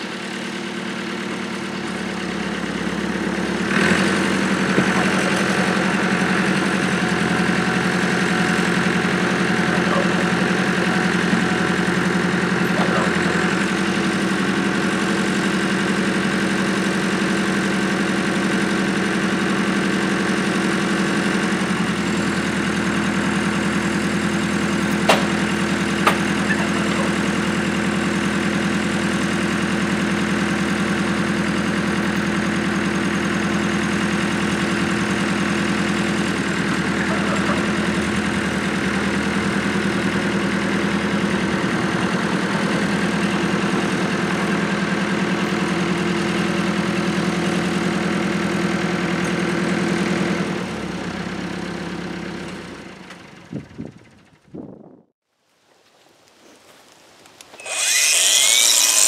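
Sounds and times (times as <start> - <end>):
tractor engine running: 0.0 - 55.0
sharp knocks: 25.1 - 25.4, 26.0 - 26.3.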